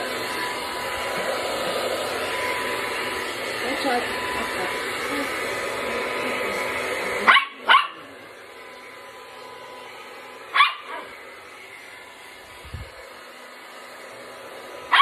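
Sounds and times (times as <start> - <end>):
hair dryer running: 0.0 - 15.0
small dog barking: 7.2 - 8.2, 10.5 - 11.2.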